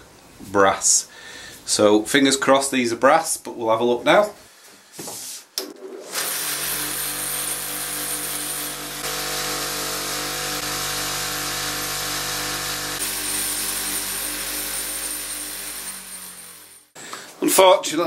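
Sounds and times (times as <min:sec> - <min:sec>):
bench grinder motor hum: 0:06.1 - 0:17.0.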